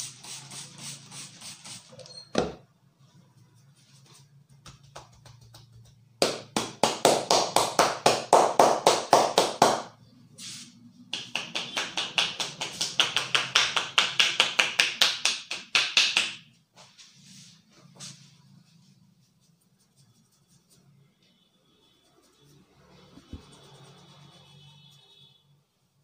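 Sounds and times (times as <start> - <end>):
hands tapping on wet head: 4.6 - 9.8.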